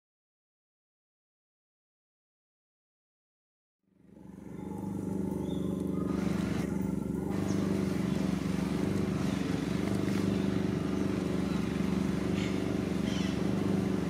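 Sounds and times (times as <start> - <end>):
motor engine running: 3.9 - 14.0.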